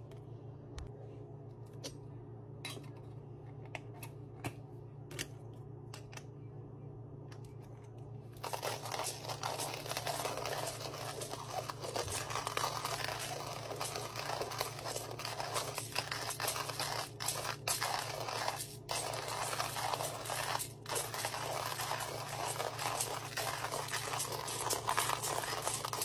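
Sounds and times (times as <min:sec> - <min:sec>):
hand coffee grinder grinding beans: 0:08.4 - 0:26.0.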